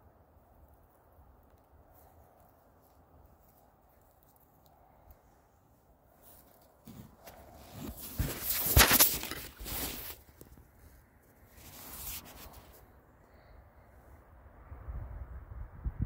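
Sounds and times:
handling rustling and scraping: 0:01.8 - 0:13.0.

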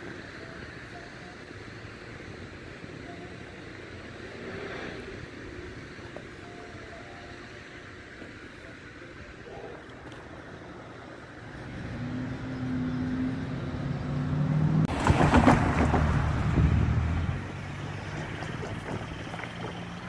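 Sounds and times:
vehicle engine passing by: 0:04.2 - 0:05.8, 0:11.4 - 0:20.0
loud rattling rush: 0:14.9 - 0:20.0.

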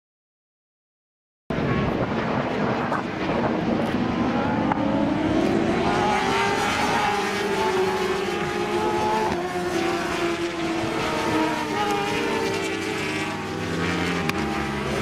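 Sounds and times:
racing motorcycles at high revs: 0:02.8 - 0:15.0.

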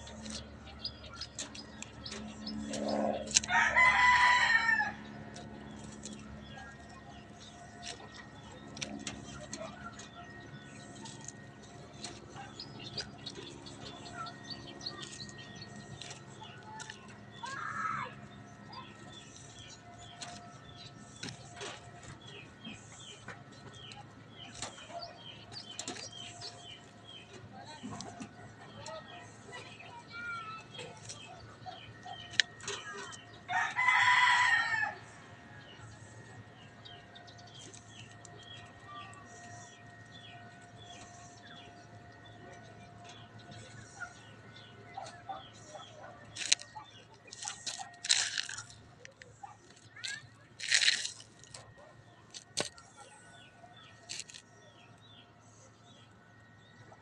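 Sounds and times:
small birds chirping: 0:00.0 - 0:57.0
rooster crowing: 0:02.8 - 0:05.0, 0:33.5 - 0:35.1.

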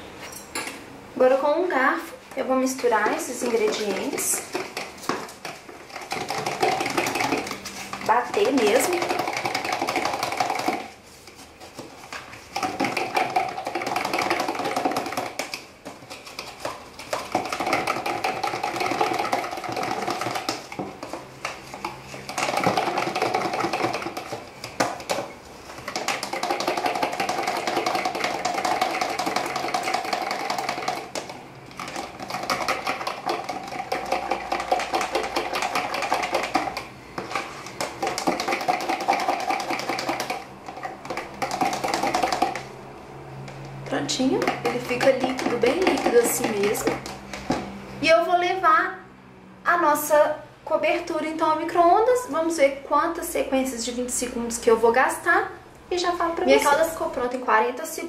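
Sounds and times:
fork beating in plastic cup: 0:02.9 - 0:42.8, 0:43.4 - 0:47.8.

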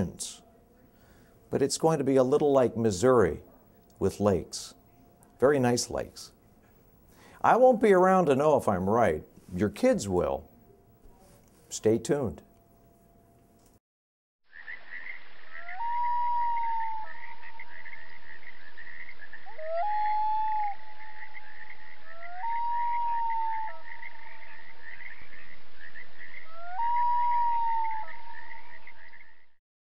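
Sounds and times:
frog chorus: 0:14.5 - 0:29.5
long wailing calls: 0:14.9 - 0:29.4.

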